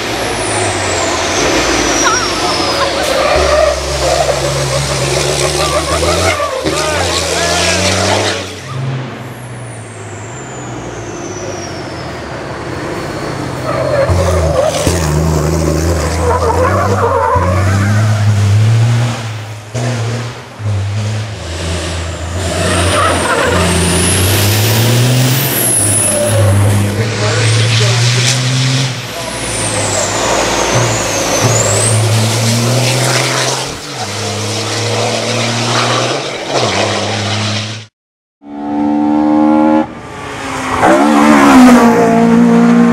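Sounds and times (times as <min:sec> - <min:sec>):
truck diesel engine running hard: 0:00.0 - 0:14.2, 0:20.6 - 0:35.7
tyres squealing: 0:00.3 - 0:08.8, 0:22.4 - 0:36.8.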